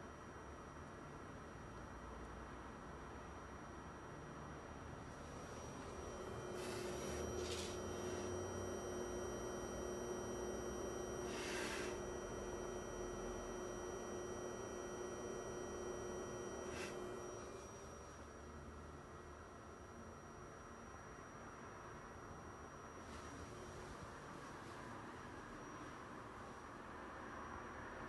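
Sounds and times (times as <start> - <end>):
projector coil whine: 3.2 - 28.0
low steady hum: 4.9 - 24.8.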